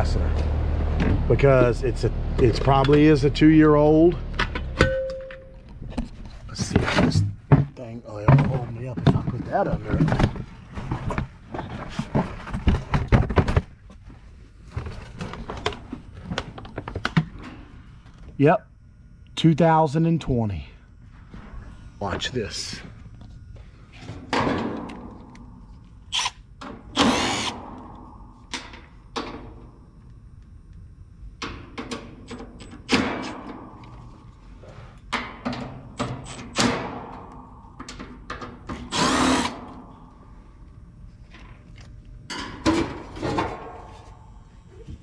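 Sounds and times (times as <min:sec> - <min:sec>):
cordless power driver whirring: 0:27.0 - 0:27.6, 0:38.8 - 0:39.6.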